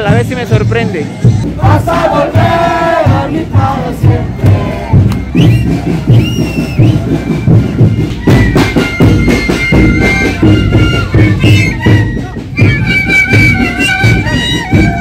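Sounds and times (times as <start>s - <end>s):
low drum beat: 0.0s - 15.0s
wooden flutes playing melody: 3.7s - 15.0s.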